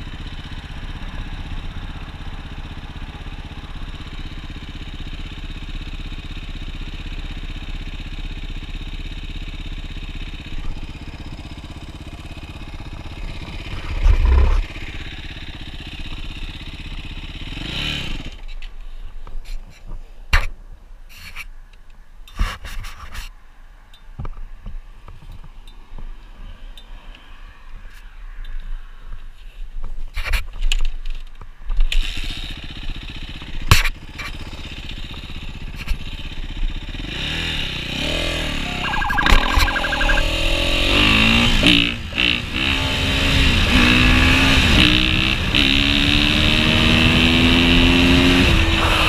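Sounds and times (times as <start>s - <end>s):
dirt bike engine running: 0.1s - 18.0s.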